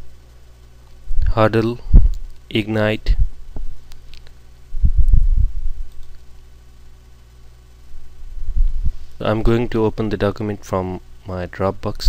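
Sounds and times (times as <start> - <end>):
steady low hum: 0.0 - 12.0
dull low thumps: 1.2 - 2.3, 3.1 - 3.8, 4.7 - 5.9, 8.0 - 9.1
faint clicks: 5.9 - 6.2.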